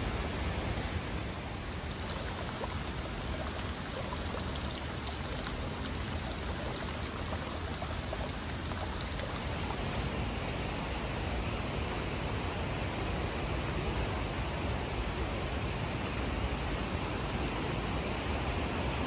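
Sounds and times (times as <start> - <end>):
water stream splashing into basin: 0.1 - 12.0.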